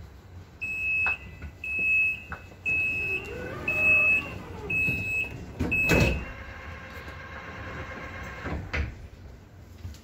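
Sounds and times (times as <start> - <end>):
train door warning beeps: 0.6 - 6.4.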